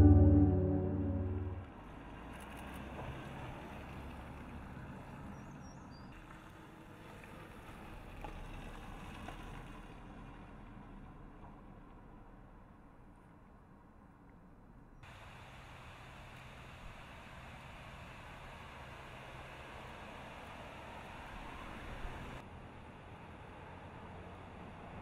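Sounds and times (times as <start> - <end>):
car driving past: 0.0 - 1.6.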